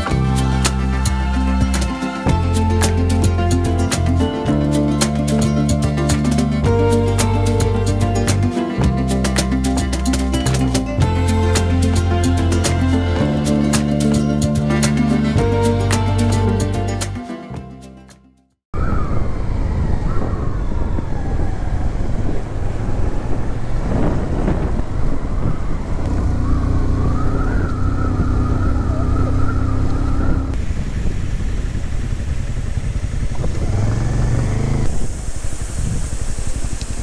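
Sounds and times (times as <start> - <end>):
motorcycle engine running: 22.8 - 37.0.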